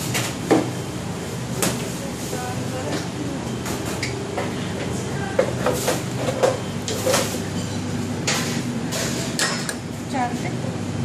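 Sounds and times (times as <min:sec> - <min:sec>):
machinery humming: 0:00.0 - 0:11.0
dishes and utensils clinking: 0:05.4 - 0:09.8.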